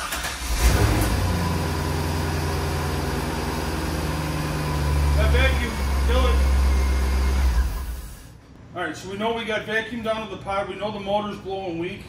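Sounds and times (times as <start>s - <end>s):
car engine revving and idling: 0.0s - 8.3s.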